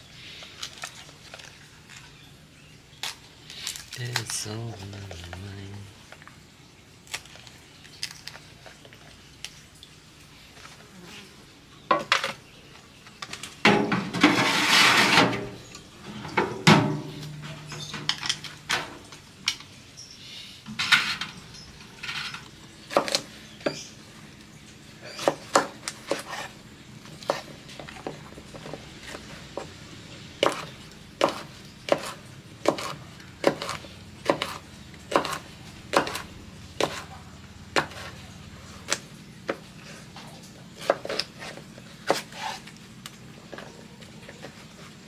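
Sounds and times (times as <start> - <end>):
knife on wooden board: 25.1 - 26.6, 30.4 - 36.2, 36.8 - 37.1, 37.8 - 38.2, 40.8 - 42.7.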